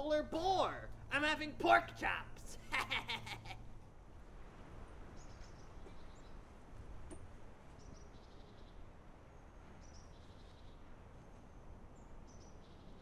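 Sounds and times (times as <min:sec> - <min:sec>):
low steady rumble: 0:00.0 - 0:13.0
small birds chirping: 0:05.0 - 0:13.0.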